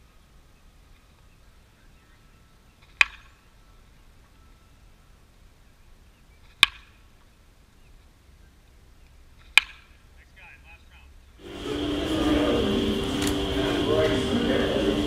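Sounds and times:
baseball bat cracking ball: 2.9s - 3.4s, 6.5s - 7.0s, 9.4s - 10.0s.

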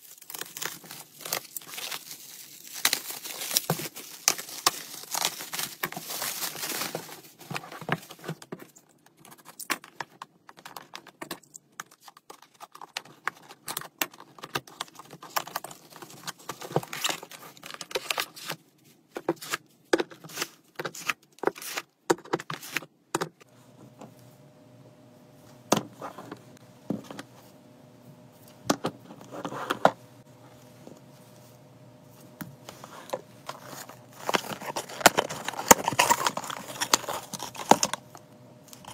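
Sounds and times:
bubble wrap crinkling and tearing: 0.0s - 8.2s, 33.4s - 38.1s
faint steady hum: 22.3s - 38.9s.

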